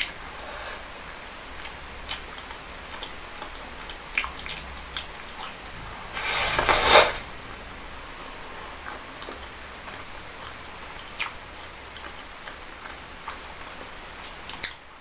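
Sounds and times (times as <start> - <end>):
chewing meatball: 1.6 - 5.6, 8.5 - 15.0.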